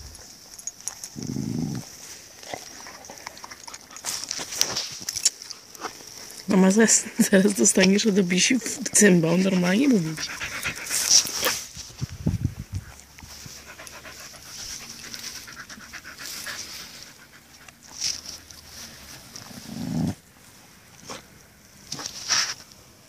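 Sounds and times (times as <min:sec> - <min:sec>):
dog panting: 0:06.8 - 0:11.7, 0:13.2 - 0:17.9.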